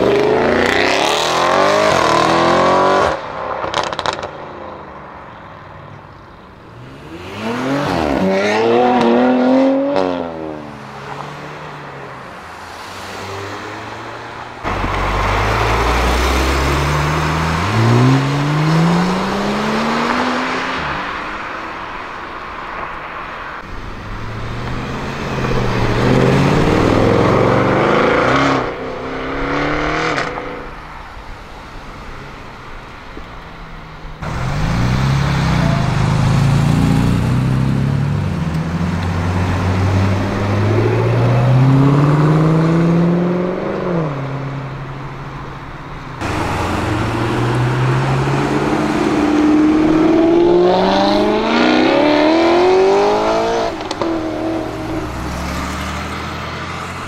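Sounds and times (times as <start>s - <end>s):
car revving with quick upshifts: 0.0s - 4.3s, 6.7s - 11.7s, 12.6s - 21.4s, 23.7s - 30.7s, 34.2s - 44.5s, 46.2s - 57.0s
loud low car engine: 0.0s - 57.0s
car engine rising note: 46.2s - 56.7s.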